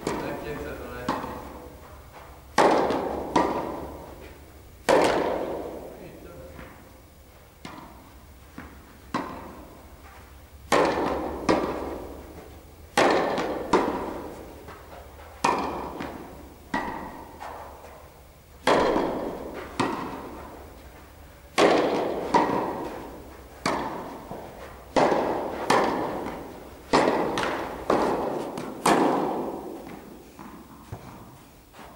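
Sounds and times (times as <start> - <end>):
tennis racket striking ball: 0.0 - 6.9, 7.5 - 31.9.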